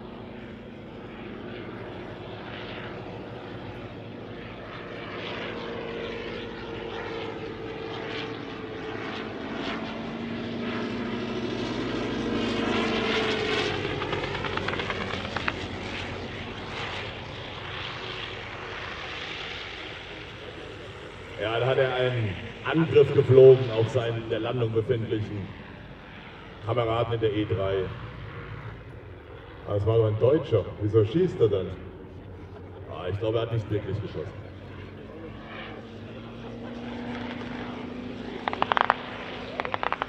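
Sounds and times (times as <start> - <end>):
airplane engine and propeller: 0.0 - 40.0
sharp crack: 38.4 - 40.0.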